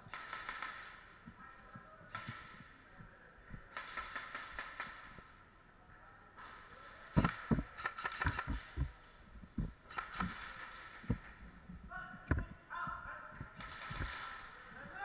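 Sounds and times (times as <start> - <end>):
footsteps: 6.4 - 15.0.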